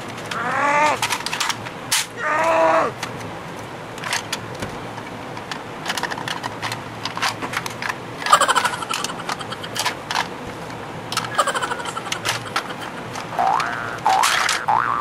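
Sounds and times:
plastic toy clicking and rattling: 0:05.4 - 0:10.3, 0:11.1 - 0:14.7.

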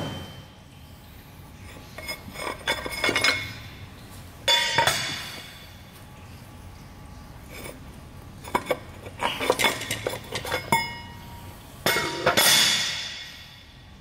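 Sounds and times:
ringing metal clank: 0:00.0 - 0:00.6, 0:04.5 - 0:05.6, 0:09.7 - 0:13.7
steel parts knocking and clinking: 0:09.4 - 0:11.2.

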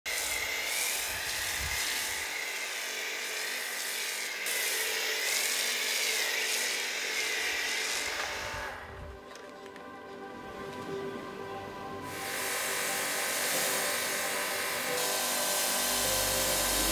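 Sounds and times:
pressure washer whine: 0:00.1 - 0:09.1, 0:12.0 - 0:16.9
hiss of foam spray: 0:12.1 - 0:16.9.

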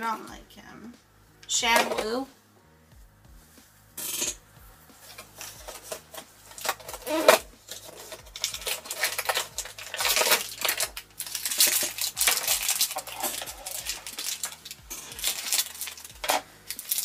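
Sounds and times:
plastic packaging crinkling: 0:05.1 - 0:17.0.

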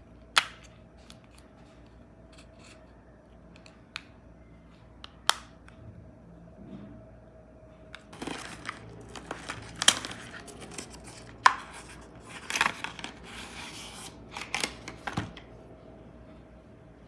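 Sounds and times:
rustling and crinkling handling: 0:08.0 - 0:15.5.

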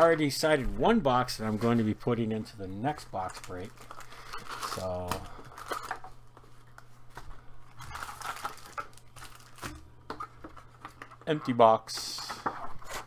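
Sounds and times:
crinkling of foil packs: 0:02.9 - 0:09.8.

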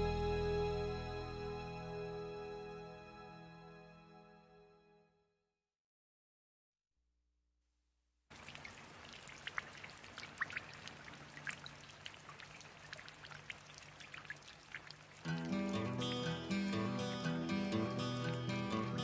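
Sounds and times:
stream water cascading over rocks: 0:14.2 - 0:17.4.

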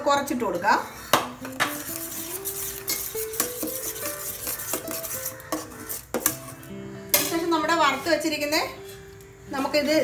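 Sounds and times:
spatula scraping thick syrup: 0:00.8 - 0:06.7
spatula clinking on metal pot: 0:01.4 - 0:06.5, 0:07.1 - 0:07.6.

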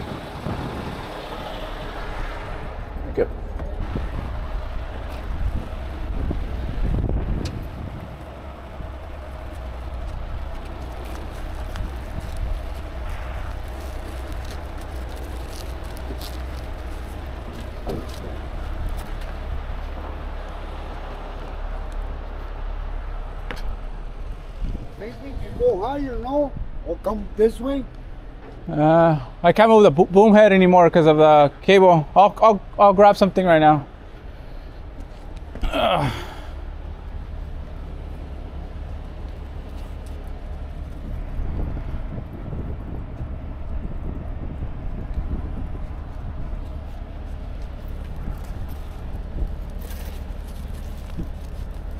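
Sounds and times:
diesel engine rumbling: 0:00.0 - 0:51.9.

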